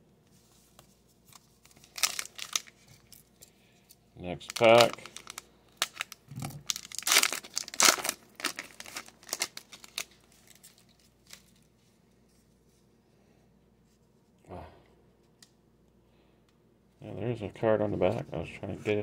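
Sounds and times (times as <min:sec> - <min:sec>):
faint handling of cards: 0:00.2 - 0:14.4
foil wrapper crinkling and tearing: 0:01.3 - 0:03.5, 0:04.4 - 0:11.7.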